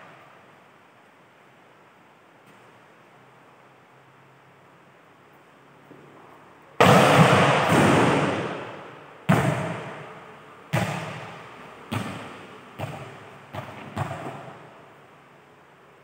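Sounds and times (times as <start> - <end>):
ball bouncing on court floor: 6.8 - 8.7, 9.3 - 10.1, 10.7 - 14.7
volleyball struck hard: 6.8 - 10.0, 10.7 - 14.6.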